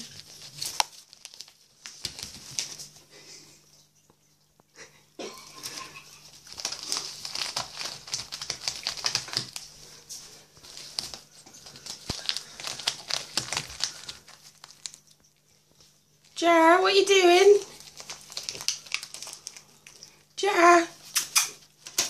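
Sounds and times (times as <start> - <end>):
plastic bag crinkling: 0.0 - 3.0, 5.4 - 20.3.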